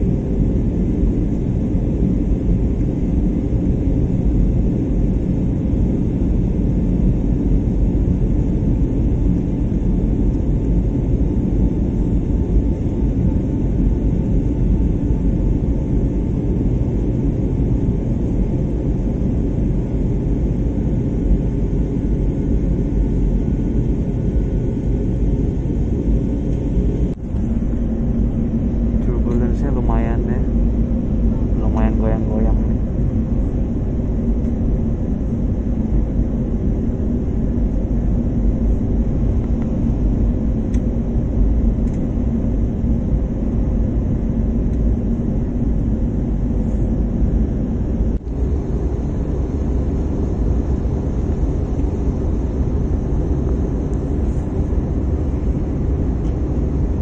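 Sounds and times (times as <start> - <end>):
jet engines roaring in cabin: 0.0 - 57.0
rushing air: 27.1 - 31.7.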